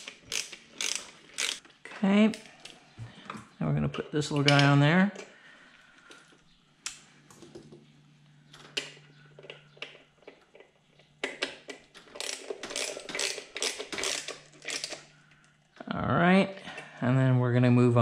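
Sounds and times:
hand ratchet clicking: 0.0 - 1.6, 12.1 - 15.0.

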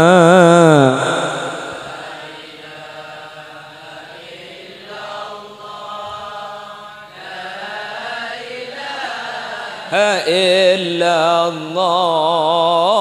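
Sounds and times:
soft devotional chanting: 0.0 - 13.0.

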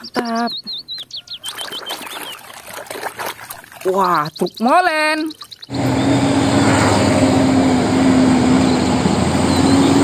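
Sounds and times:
truck engine droning: 5.7 - 10.0.

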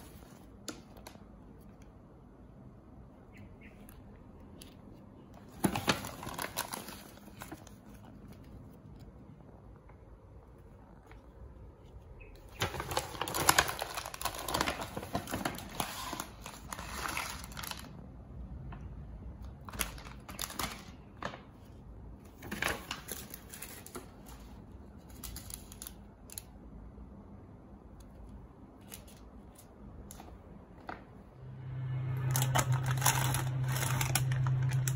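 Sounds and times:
plastic packets crinkling: 5.4 - 9.0, 12.4 - 18.0, 19.5 - 21.7, 22.3 - 26.5, 32.2 - 34.9.

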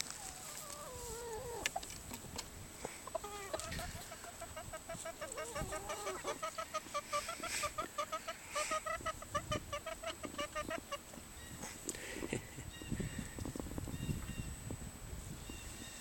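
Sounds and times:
chicken drawn-out call: 0.1 - 1.8, 3.0 - 11.0
chicken clucking: 0.1 - 11.2.

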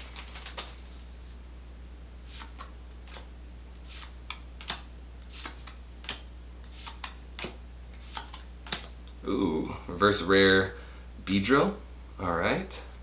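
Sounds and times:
cards flicking: 0.0 - 0.8, 2.3 - 9.2
steady low hum: 0.0 - 13.0.

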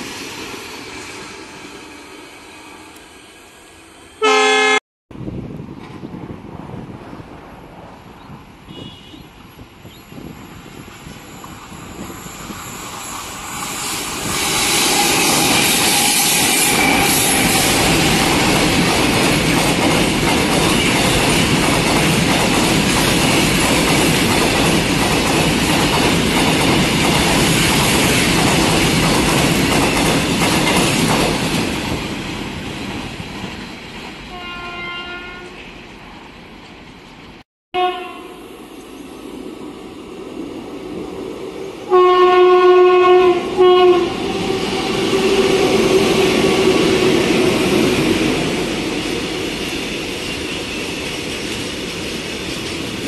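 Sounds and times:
train horn: 4.2 - 4.8, 8.7 - 9.3, 14.4 - 18.2, 34.3 - 35.6, 37.7 - 38.5, 41.9 - 46.7
train wheels rumbling on rails: 5.2 - 8.7, 9.3 - 37.4, 38.7 - 53.0.

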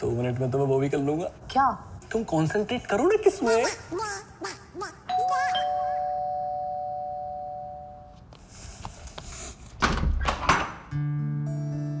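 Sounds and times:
two-note doorbell chime: 5.1 - 8.1.

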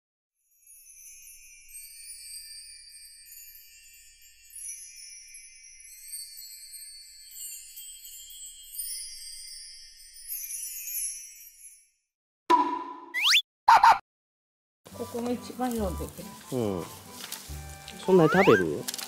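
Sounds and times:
tinkling chimes and bells music: 0.4 - 12.1.

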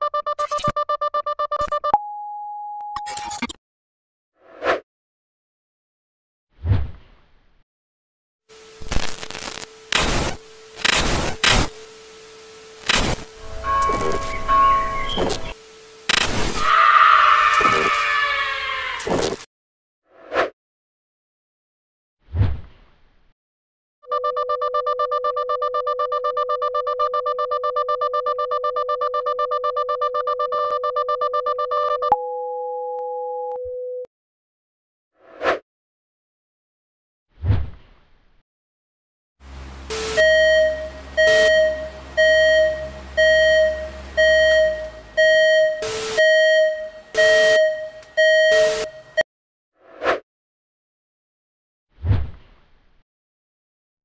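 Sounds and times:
pulsing electronic buzzing tone: 8.5 - 16.3
digital static bursts: 8.5 - 16.8
low hum: 8.6 - 16.1, 39.4 - 45.7
electronic error beeps: 12.8 - 16.4, 39.9 - 49.2.

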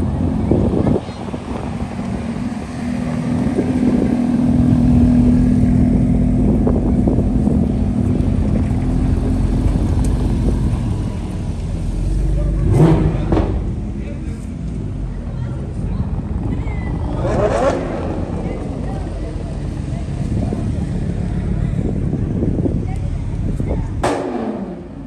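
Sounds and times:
sports car engines at low revs: 0.0 - 25.0
rising engine rev: 1.8 - 13.9, 16.0 - 22.4.

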